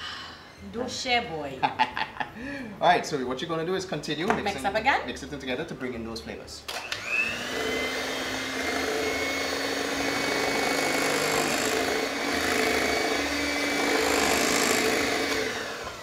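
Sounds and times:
electric hand mixer whirring: 0:06.7 - 0:16.0.

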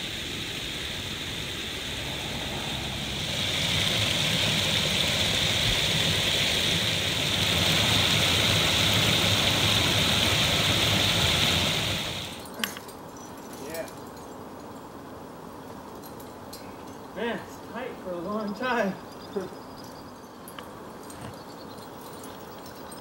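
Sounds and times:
stream water rushing: 0:00.0 - 0:12.4.

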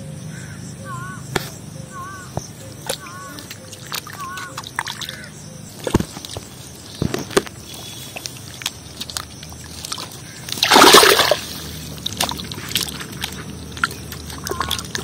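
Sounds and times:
fish slapping in water: 0:02.8 - 0:15.0
loud water splash: 0:09.9 - 0:15.0.

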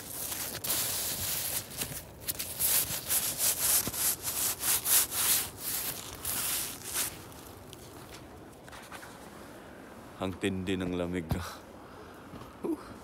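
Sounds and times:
hand scraping frosty tent fabric: 0:00.0 - 0:09.1.

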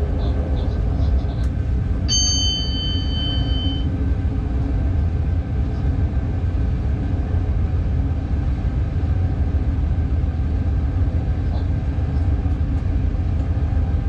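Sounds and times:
train wheels on rail rumbling: 0:00.0 - 0:14.0
high electronic beep: 0:02.1 - 0:03.9.

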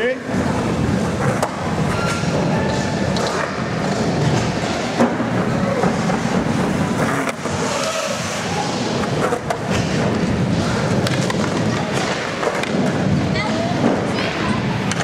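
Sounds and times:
skateboard wheels rumbling on concrete: 0:00.0 - 0:15.0
skateboard clacks: 0:00.8 - 0:08.0, 0:08.9 - 0:15.0.

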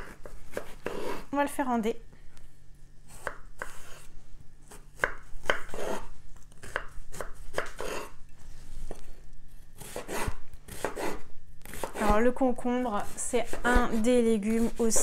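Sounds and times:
knife chopping on wooden board: 0:03.1 - 0:04.1, 0:04.7 - 0:06.0, 0:06.6 - 0:08.1, 0:09.8 - 0:12.2, 0:13.0 - 0:15.0.

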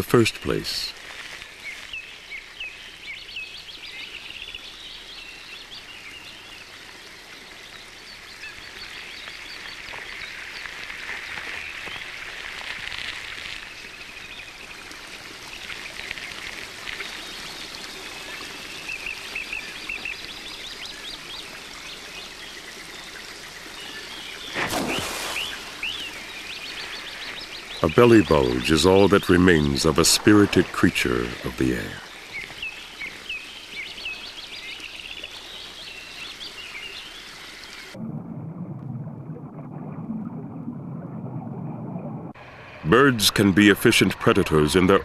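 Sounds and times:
watery hiss: 0:24.4 - 0:27.4
rush of noise: 0:41.8 - 0:45.0.

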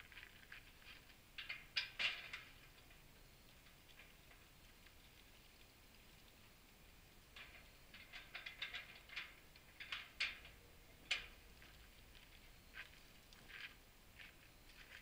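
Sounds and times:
metal fittings clicking and rattling: 0:07.4 - 0:11.3.

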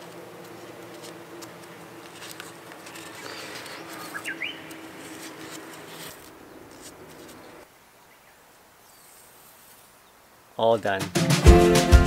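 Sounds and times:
paper being twisted: 0:00.0 - 0:07.6
faint drone: 0:00.0 - 0:07.7
bird chirps: 0:02.9 - 0:05.7.

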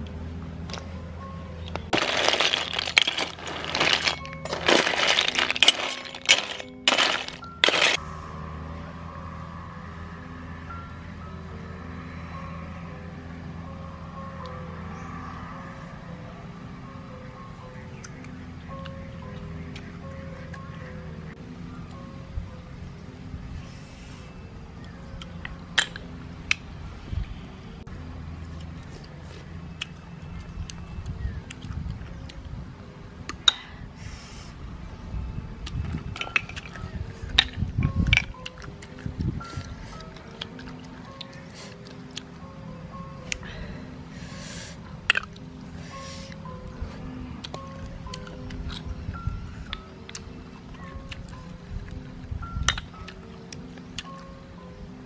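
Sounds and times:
soft background music: 0:00.0 - 0:55.0
shells clattering in metal wok: 0:02.0 - 0:08.0.

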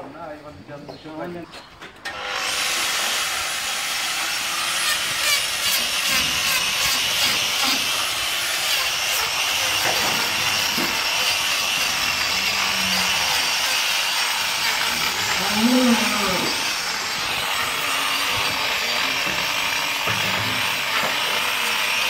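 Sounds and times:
angle grinder whining: 0:02.0 - 0:22.0
disc grinding and scraping hoof: 0:04.6 - 0:22.0.

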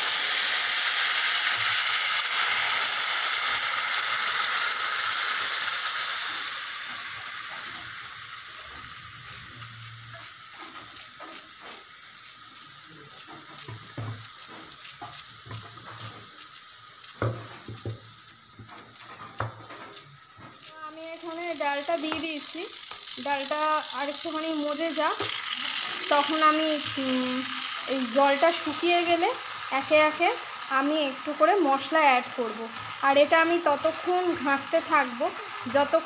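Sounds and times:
lentils sizzling in hot pan: 0:00.0 - 0:36.0.

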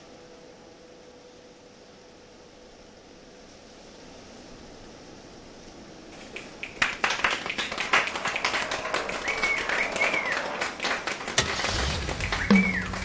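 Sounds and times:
steady hiss: 0:00.0 - 0:13.0
whistle-like chirps: 0:08.9 - 0:10.6, 0:11.7 - 0:13.0.

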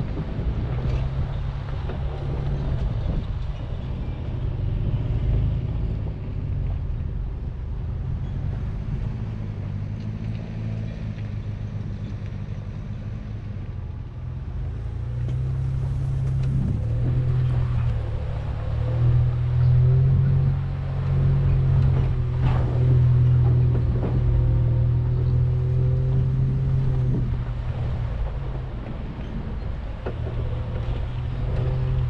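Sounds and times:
truck engine rumble: 0:00.0 - 0:32.0
tyres on dirt and rock: 0:14.5 - 0:32.0.

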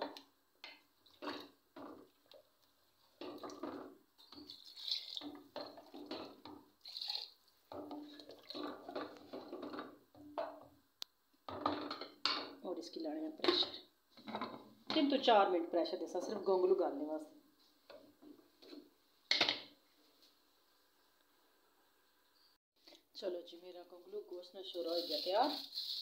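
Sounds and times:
wooden spoon stirring liquid: 0:00.1 - 0:10.8
water pouring and splashing: 0:04.4 - 0:09.4.

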